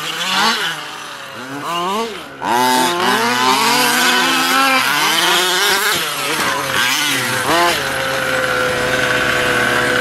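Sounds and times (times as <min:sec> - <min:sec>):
small engines revving: 0:00.0 - 0:10.0
engine idling: 0:05.7 - 0:10.0.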